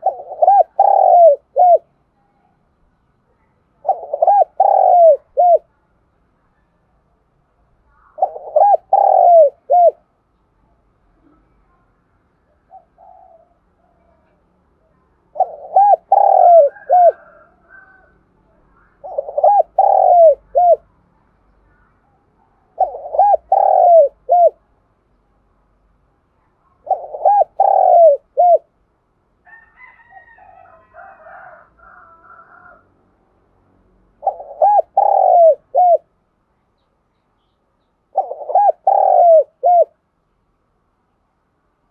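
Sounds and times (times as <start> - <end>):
dove cooing: 0.0 - 1.9, 3.8 - 5.7, 8.0 - 10.1, 12.5 - 14.4, 15.3 - 18.2, 18.9 - 20.9, 22.7 - 24.6, 26.8 - 28.7, 34.2 - 36.1, 38.1 - 40.0.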